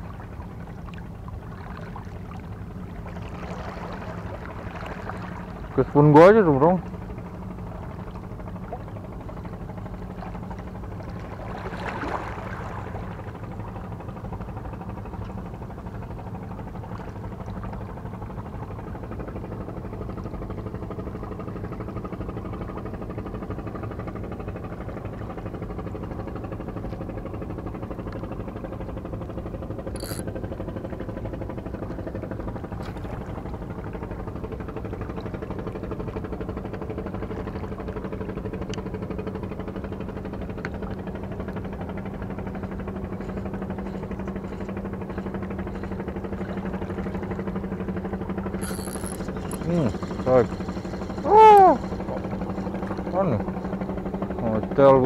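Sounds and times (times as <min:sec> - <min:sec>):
low engine drone: 0:00.0 - 0:55.0
short clicks: 0:30.0 - 0:30.2, 0:48.6 - 0:49.6.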